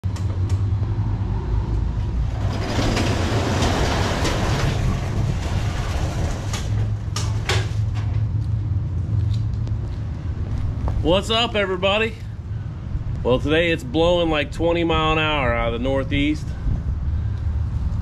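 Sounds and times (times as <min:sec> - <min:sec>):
wind rumble on microphone: 0:00.1 - 0:18.0
garage door rattling up tracks: 0:02.1 - 0:08.3.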